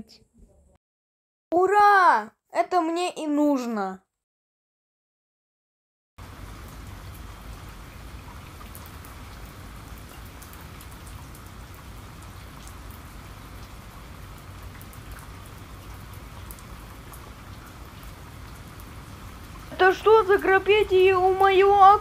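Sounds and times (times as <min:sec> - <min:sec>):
rain patter: 0:06.2 - 0:22.0.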